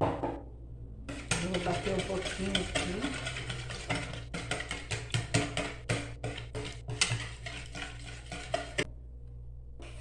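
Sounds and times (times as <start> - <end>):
whisk clicking against bowl: 1.1 - 8.9.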